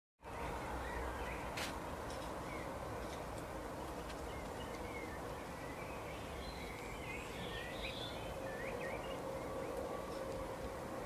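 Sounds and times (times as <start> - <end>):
outdoor background noise: 0.2 - 11.0
songbirds chirping: 0.2 - 11.0.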